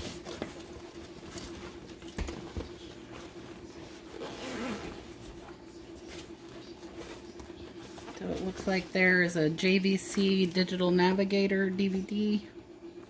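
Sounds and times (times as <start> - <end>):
bag rustling against cardboard: 0.0 - 9.0
zipper pulled open: 4.0 - 5.1.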